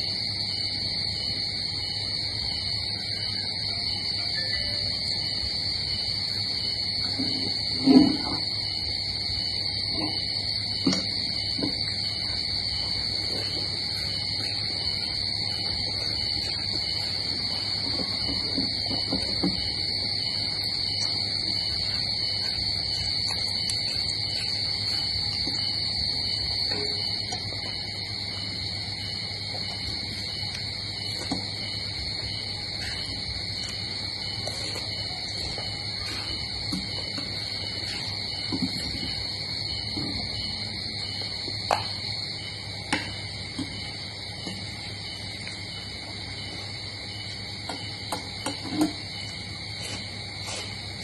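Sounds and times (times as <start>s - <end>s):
high-pitched insect chorus: 0.0s - 51.0s
person chewing: 20.4s - 26.2s, 32.8s - 38.2s.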